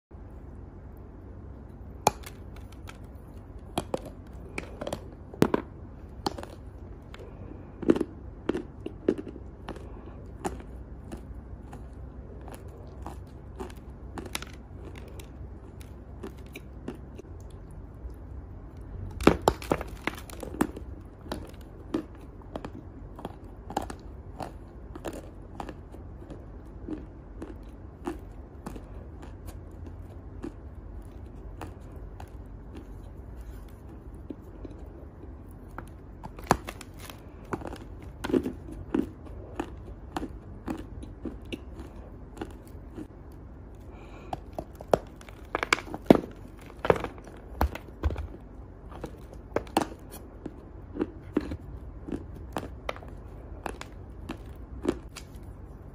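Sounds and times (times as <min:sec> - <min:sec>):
chalk being chewed: 0:20.3 - 0:45.5.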